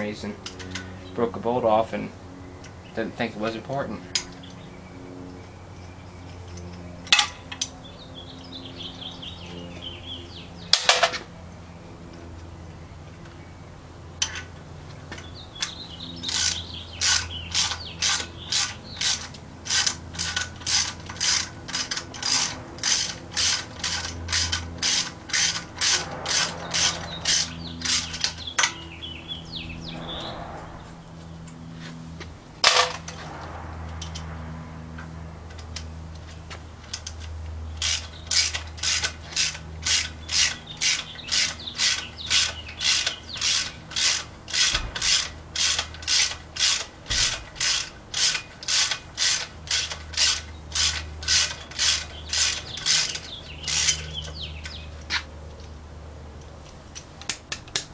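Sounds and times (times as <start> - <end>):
ratchet wrench clicking: 15.1 - 28.8, 35.5 - 54.8.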